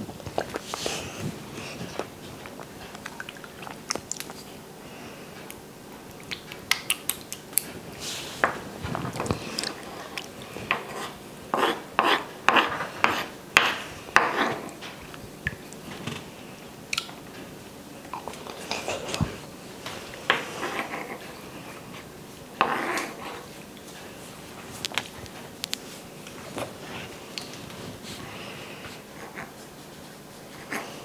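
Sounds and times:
wet eating sounds: 0.0s - 4.7s, 5.4s - 7.8s, 8.8s - 10.6s.

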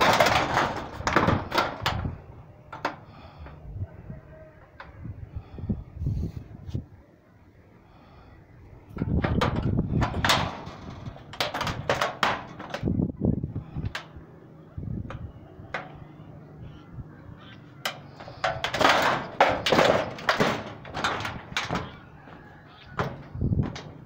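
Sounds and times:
footsteps on metal sheeting: 18.2s - 24.0s.

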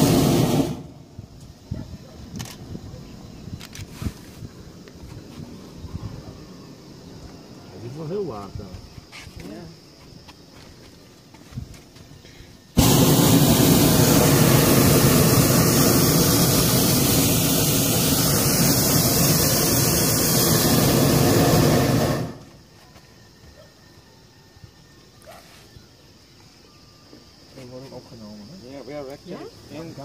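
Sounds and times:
propane burner blast: 0.0s - 1.4s, 12.7s - 22.6s.

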